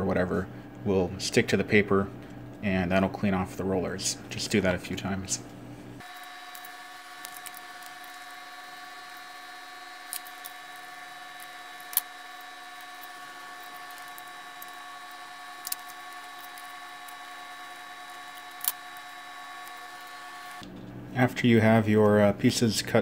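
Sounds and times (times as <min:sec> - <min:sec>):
faint hum with high tones: 0:00.0 - 0:23.0.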